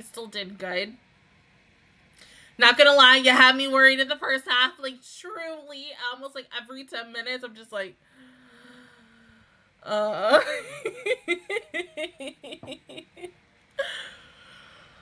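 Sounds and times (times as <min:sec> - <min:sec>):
breathy exhale: 0:08.0 - 0:09.7
woman laughing: 0:10.2 - 0:14.2.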